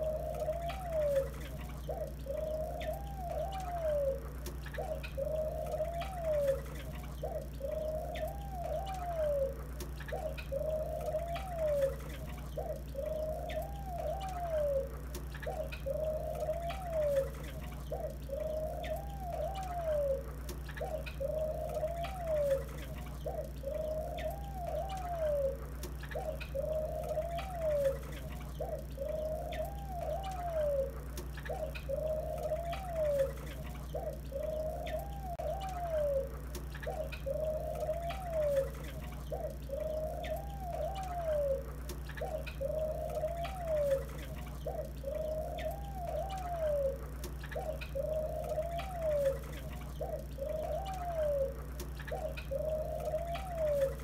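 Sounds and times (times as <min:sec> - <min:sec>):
doves cooing: 0:00.0 - 0:54.0
finches chirping: 0:00.0 - 0:54.0.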